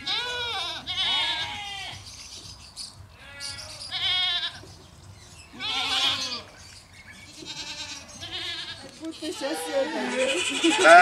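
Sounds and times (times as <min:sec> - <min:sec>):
goats bleating: 0:00.0 - 0:02.0, 0:03.2 - 0:04.6, 0:05.5 - 0:06.6, 0:07.2 - 0:11.0.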